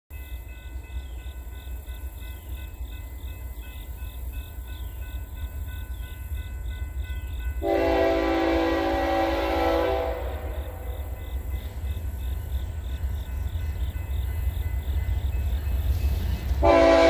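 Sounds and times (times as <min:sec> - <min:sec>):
train rumble: 0:00.1 - 0:17.0
locomotive horn blasting: 0:07.6 - 0:11.0, 0:16.6 - 0:17.0.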